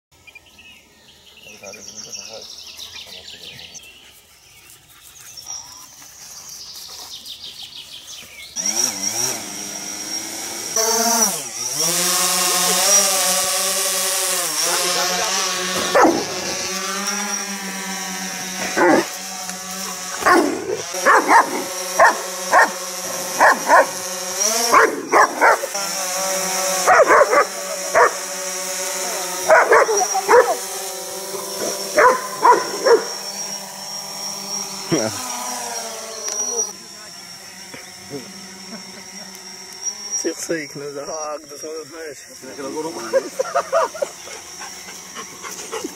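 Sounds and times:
drone propellers buzzing: 5.5s - 45.9s
dog barking: 15.8s - 16.4s, 20.2s - 22.8s, 23.4s - 24.0s, 24.7s - 25.7s, 26.8s - 28.2s, 29.5s - 30.6s, 32.0s - 33.2s.

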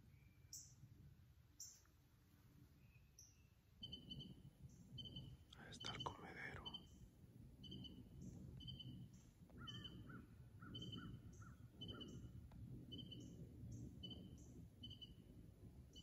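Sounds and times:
lower bird calls: 2.8s - 7.0s, 7.6s - 15.3s.

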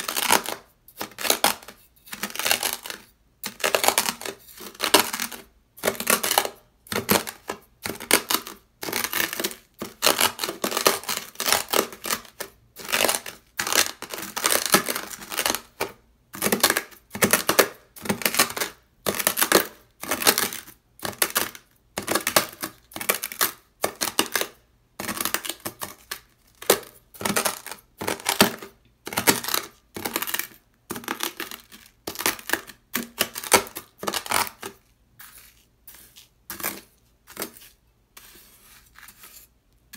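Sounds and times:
knife scraping through sand: 37.5s - 39.5s.

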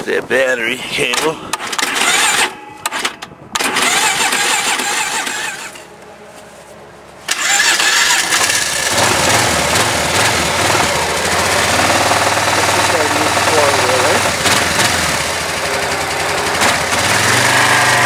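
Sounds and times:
quad bike engine idling: 7.4s - 18.0s.

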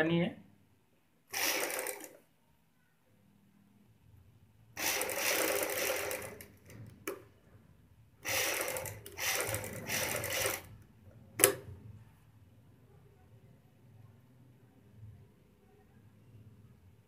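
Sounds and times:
sewing machine running: 1.3s - 2.2s, 4.8s - 6.8s, 8.2s - 10.7s.

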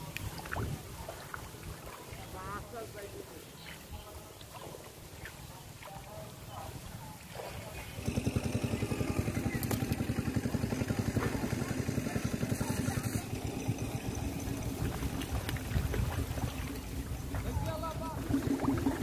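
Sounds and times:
engine running: 7.5s - 19.0s.

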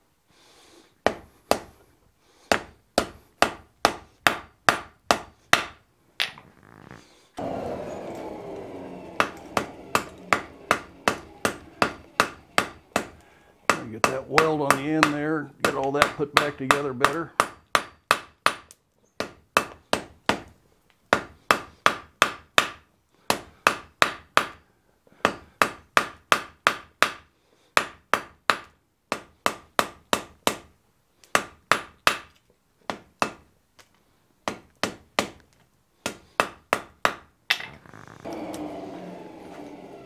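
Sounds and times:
hammer striking iron on anvil: 10.0s - 18.6s.

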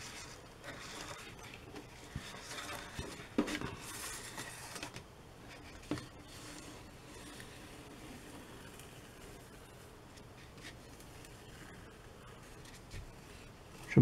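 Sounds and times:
paper rustling: 0.0s - 14.0s
scratchy hiss: 0.0s - 14.0s
tape peeling off paper: 2.2s - 5.0s.

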